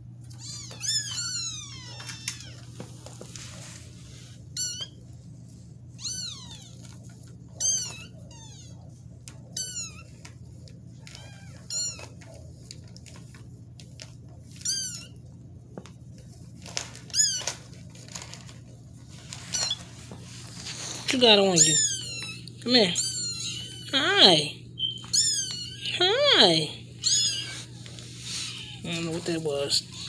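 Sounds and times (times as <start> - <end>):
steady low hum: 0.0 - 30.0
kittens meowing: 0.3 - 2.7, 6.0 - 10.3, 11.0 - 12.4, 17.0 - 17.7, 21.3 - 30.0.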